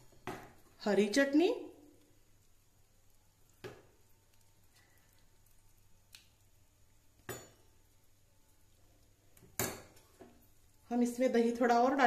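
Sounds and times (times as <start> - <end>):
spoon clinking on steel plate: 7.3 - 7.7.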